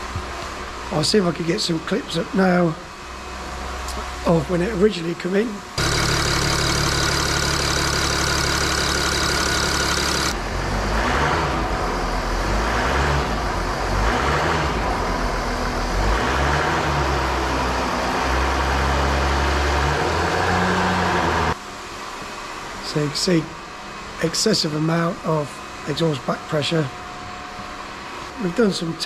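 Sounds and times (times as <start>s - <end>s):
diesel engine idling and revving: 0.0s - 21.6s.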